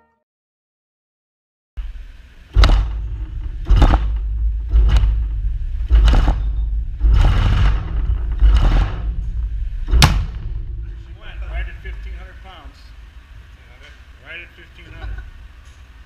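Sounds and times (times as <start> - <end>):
pressure pump hissing thumps: 1.8 - 13.2
low rumble: 1.8 - 14.2.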